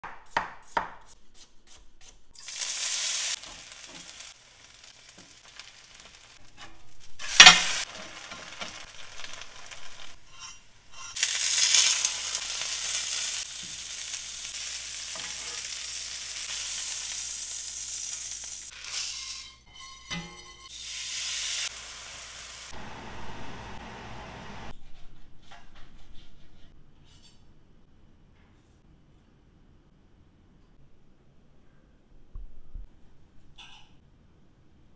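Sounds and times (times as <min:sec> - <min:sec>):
food sizzling in frying pan: 0:02.4 - 0:19.5, 0:20.7 - 0:24.0
loud sizzling burst: 0:07.1 - 0:10.2, 0:11.2 - 0:18.9, 0:20.7 - 0:24.7.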